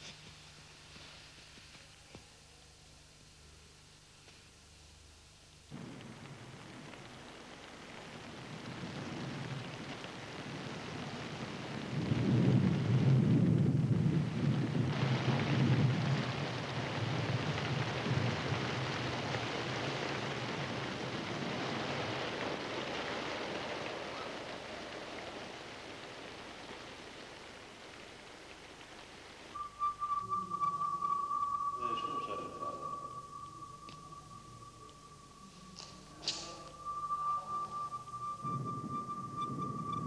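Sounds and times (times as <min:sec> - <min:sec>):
steady hiss: 0:00.0 - 0:40.0
deep rumble: 0:29.6 - 0:40.0.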